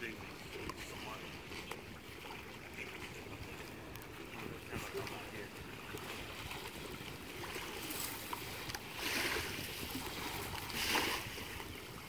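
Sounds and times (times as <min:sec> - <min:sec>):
shallow water splashing: 0:00.0 - 0:12.0
wind rumbling on microphone: 0:00.0 - 0:12.0.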